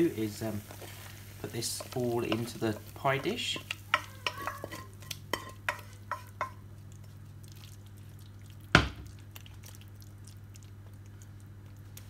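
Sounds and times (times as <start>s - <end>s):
knocks and scrapes against bowl: 3.6s - 6.6s.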